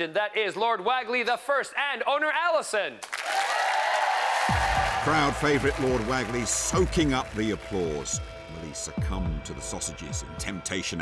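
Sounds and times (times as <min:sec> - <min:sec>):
studio audience applauding: 0:03.0 - 0:09.2
deep bass: 0:04.5 - 0:10.6.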